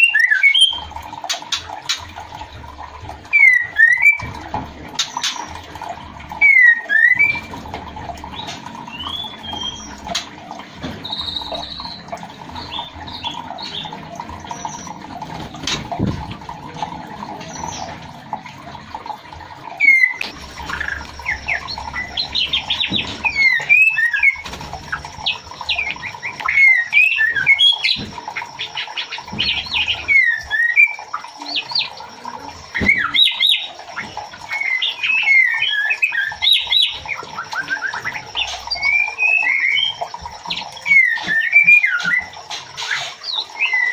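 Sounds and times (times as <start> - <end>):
bird whistles and chirps: 0.0 - 0.9, 3.3 - 4.3, 6.4 - 7.5, 11.0 - 15.0, 19.8 - 24.4, 25.2 - 28.0, 28.7 - 32.0, 34.5 - 43.9.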